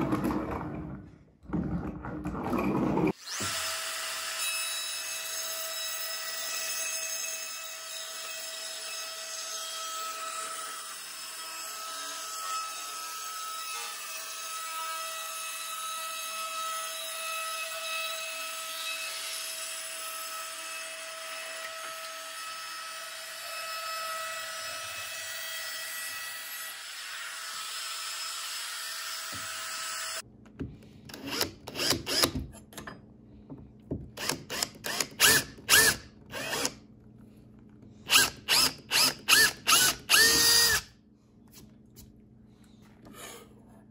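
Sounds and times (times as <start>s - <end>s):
cordless drill boring: 3.1s - 4.4s, 31.1s - 32.4s, 34.2s - 36.8s, 38.0s - 40.9s
router whining while cutting: 34.2s - 36.8s, 38.1s - 40.8s.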